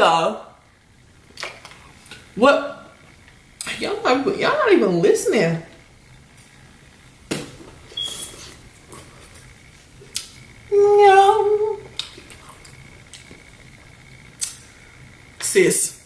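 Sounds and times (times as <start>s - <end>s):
woman humming with enjoyment: 10.7s - 11.9s
eating clicks and smacking: 11.9s - 13.4s.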